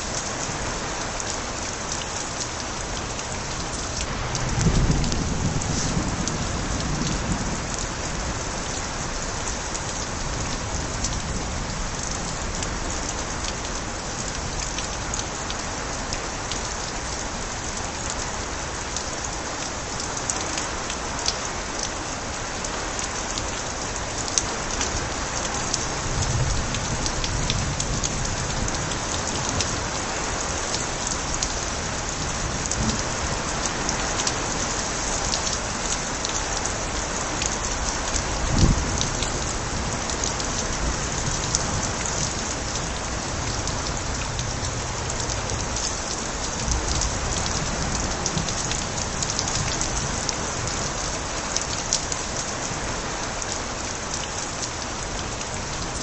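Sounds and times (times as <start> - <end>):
heavy rain: 0.0 - 56.0
water pouring from gutters: 0.0 - 56.0.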